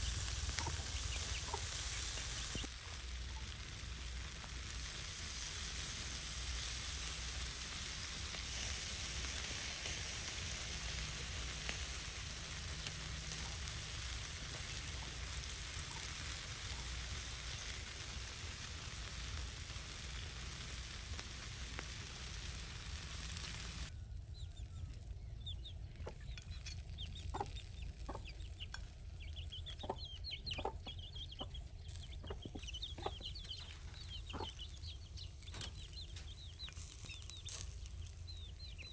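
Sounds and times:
ribs sizzling: 0:00.0 - 0:23.9, 0:33.7 - 0:38.9.

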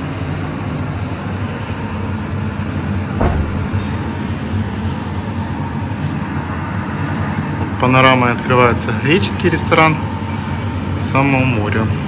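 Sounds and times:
outdoor rumble and hiss: 0:00.0 - 0:12.0
soft knock: 0:03.2 - 0:03.7.

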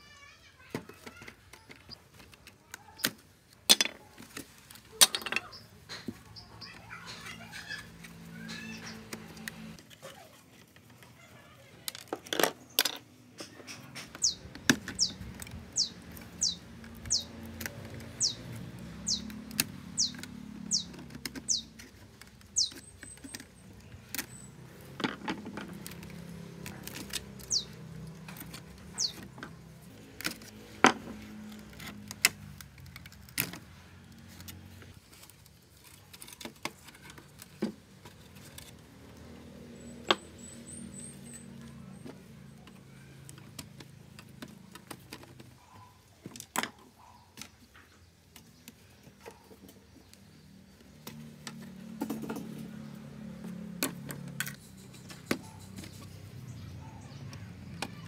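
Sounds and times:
plastic and metal parts clicking: 0:11.8 - 0:38.9, 0:42.0 - 0:49.8
high falling chirp: 0:22.6 - 0:23.2.

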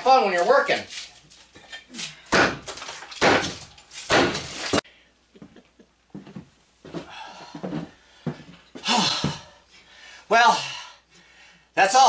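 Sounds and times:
hammer breaking cinder blocks: 0:02.3 - 0:04.8.

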